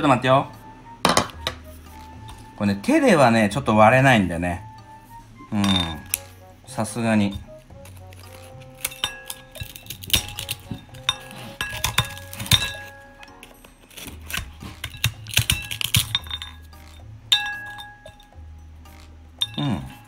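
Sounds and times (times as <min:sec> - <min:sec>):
background music: 0:00.0 - 0:20.0
crumbs clinking against ceramic bowl: 0:05.6 - 0:06.3, 0:07.2 - 0:20.0
shears cutting and cracking chew: 0:07.5 - 0:16.1.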